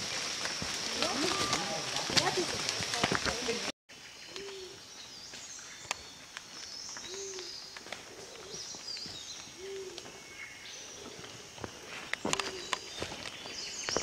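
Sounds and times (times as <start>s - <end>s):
birds chirping: 0.4s - 14.0s
bird cooing: 4.3s - 4.8s, 7.1s - 7.5s, 8.1s - 8.6s, 9.6s - 10.2s.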